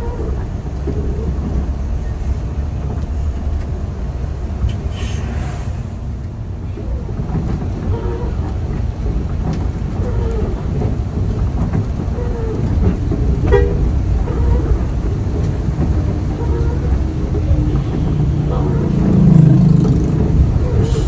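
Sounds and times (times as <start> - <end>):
bus engine rumble: 0.0 - 21.0
rain on windscreen: 0.0 - 21.0.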